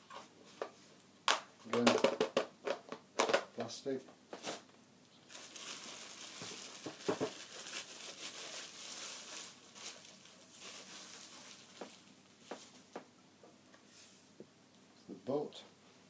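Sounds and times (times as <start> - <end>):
bubble wrap crinkling: 5.3 - 13.0.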